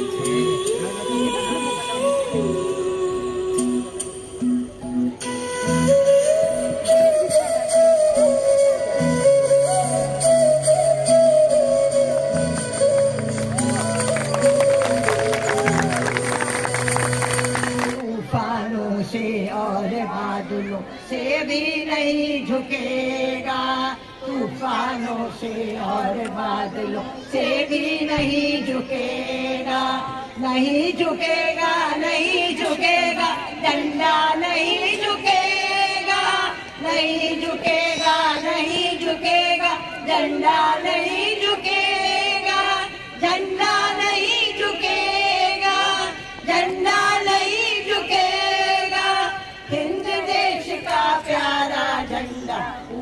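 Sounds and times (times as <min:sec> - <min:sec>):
women singing in chorus: 0:00.0 - 0:04.3, 0:18.0 - 0:53.0.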